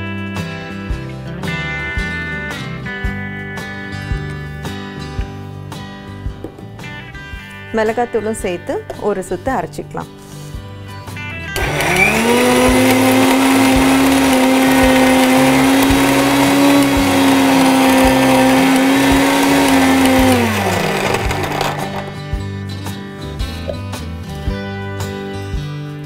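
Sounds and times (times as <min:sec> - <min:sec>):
mixer grinder motor: 0:11.6 - 0:22.3.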